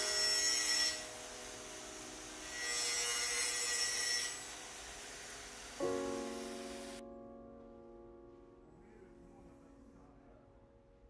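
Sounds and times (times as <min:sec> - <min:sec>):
router cutting wood: 0:00.0 - 0:07.0
soft background music: 0:00.0 - 0:11.0.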